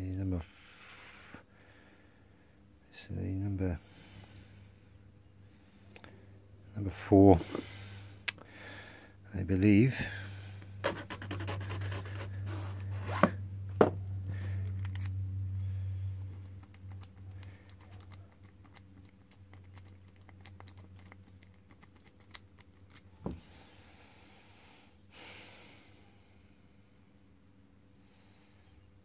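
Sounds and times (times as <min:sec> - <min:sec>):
low hum: 0:03.9 - 0:21.9.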